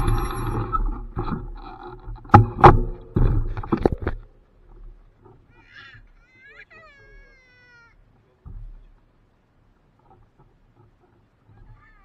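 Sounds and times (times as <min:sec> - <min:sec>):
bike knocks and clunks: 0:00.0 - 0:05.4
bicycle tyres and wind: 0:00.0 - 0:06.2.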